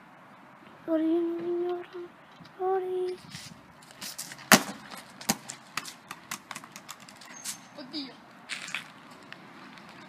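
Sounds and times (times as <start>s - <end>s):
bottle skittering across road: 3.3s - 7.8s, 8.5s - 9.2s
plastic bottle cracking on asphalt: 3.9s - 7.4s.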